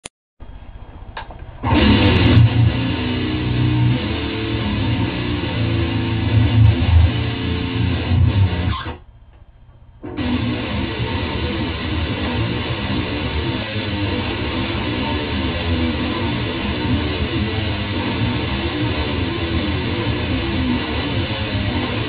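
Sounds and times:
electric guitar metal riff: 1.6 - 9.0, 10.0 - 22.0.

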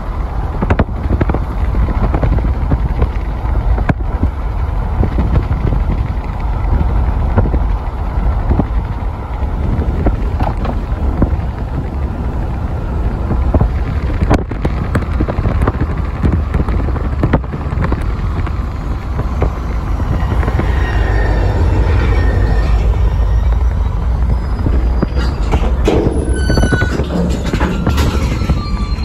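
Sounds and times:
road rumble inside moving car: 0.0 - 29.0
wind buffeting microphone: 0.0 - 29.0
faint high squeal: 18.4 - 29.0.

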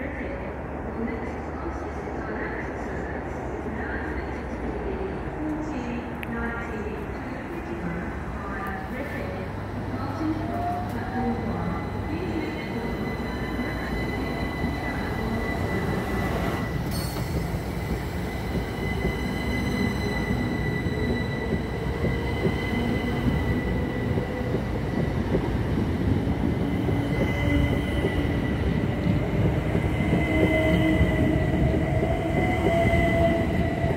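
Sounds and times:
high train whine: 0.0 - 33.9
low rising train tones: 0.0 - 33.9
train wheels on rails: 12.3 - 33.9.

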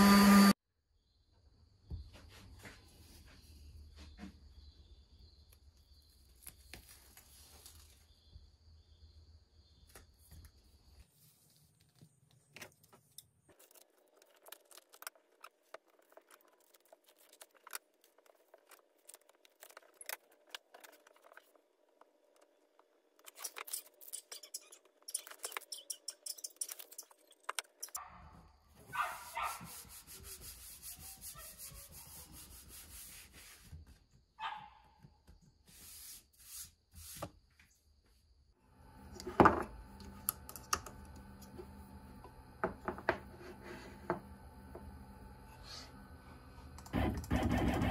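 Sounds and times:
tape rubbing on wood: 29.0 - 34.0, 46.9 - 47.9.

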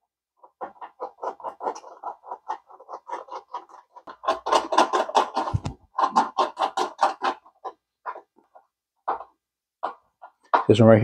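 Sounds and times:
screwdriver clicks and scrapes: 1.2 - 8.2.

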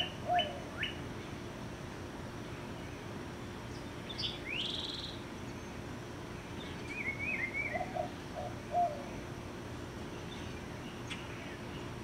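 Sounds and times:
bird singing phrases: 0.0 - 1.4, 2.4 - 9.3, 10.0 - 12.0
steady low hum: 0.0 - 12.0.

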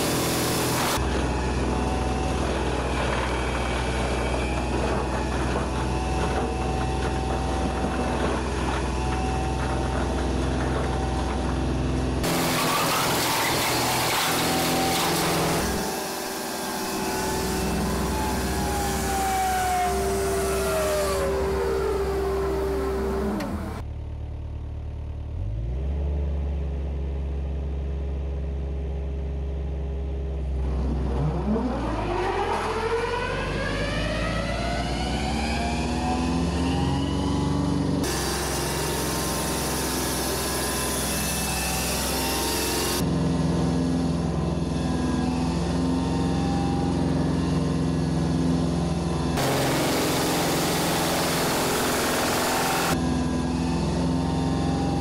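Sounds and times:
wood chipper rotor whine: 0.0 - 24.0, 29.5 - 55.0
low engine hum: 16.5 - 38.2.

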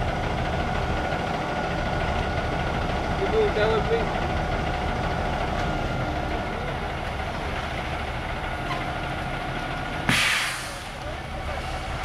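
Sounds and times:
concrete mixer truck engine rumble: 0.0 - 12.0.

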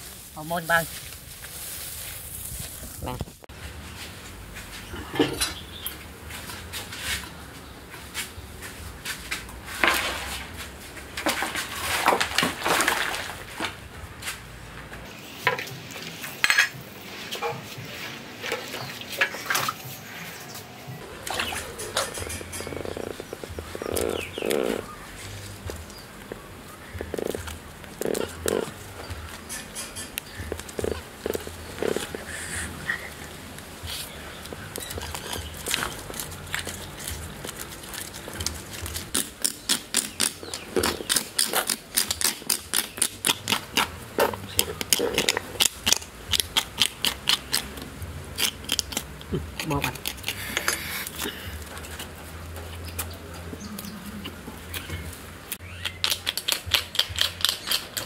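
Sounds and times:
water splashing and dripping: 11.3 - 13.8
metal spoon scraping scaly hide: 21.2 - 25.5, 29.3 - 31.0, 49.6 - 53.0, 56.0 - 58.0.

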